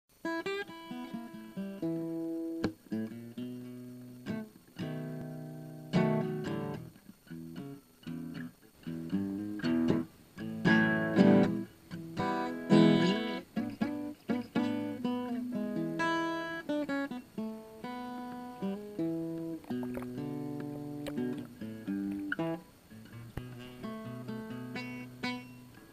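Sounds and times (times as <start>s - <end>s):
acoustic guitar: 0.1s - 25.9s.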